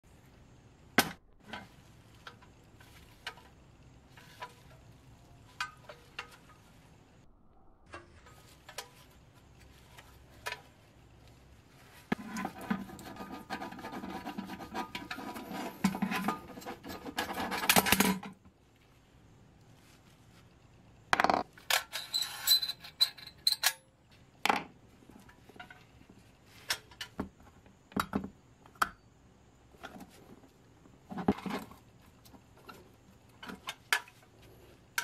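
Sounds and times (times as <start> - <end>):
rough rubbing and scraping: 8.1 - 18.2.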